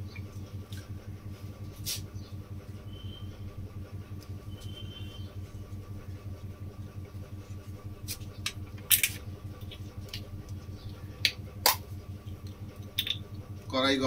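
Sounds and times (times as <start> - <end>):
steady low hum: 0.0 - 14.0
bottle being opened clicks: 13.0 - 13.2.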